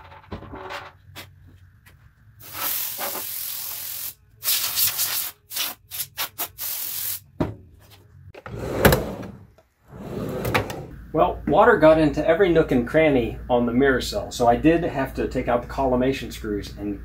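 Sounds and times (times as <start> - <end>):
compressed air spraying: 2.4 - 7.2.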